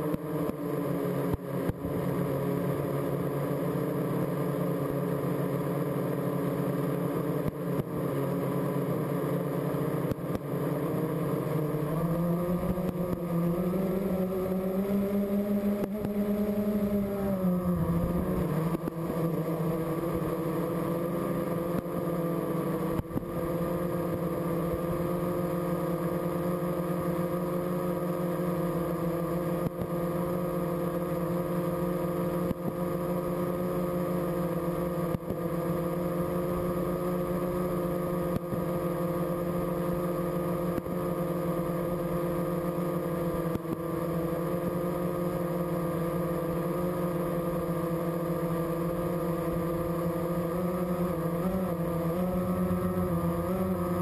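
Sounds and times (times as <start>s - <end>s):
drone propellers humming: 0.0s - 54.0s.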